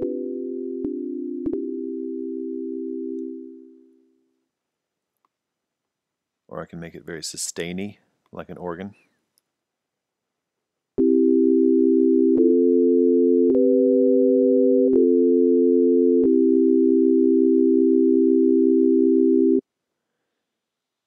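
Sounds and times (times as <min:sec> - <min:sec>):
sustained organ-like synth chord: 0:00.0 - 0:03.8, 0:11.0 - 0:19.6.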